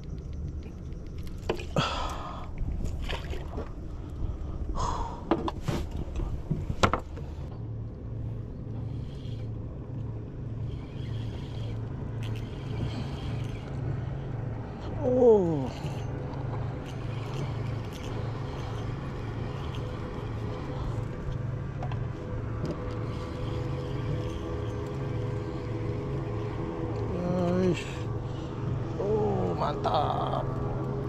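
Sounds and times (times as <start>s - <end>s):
boat engine hum: 0.0s - 31.0s
fishing reel clicks and knocks: 10.7s - 13.8s.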